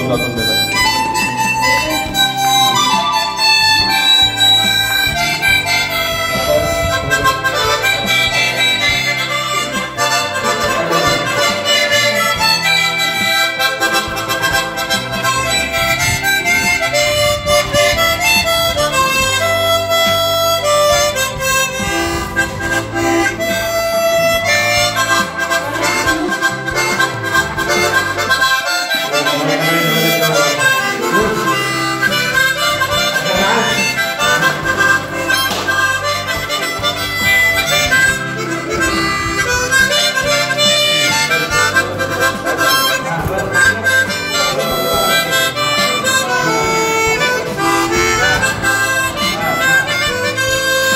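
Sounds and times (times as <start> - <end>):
harmonica playing chords: 0.0 - 50.9.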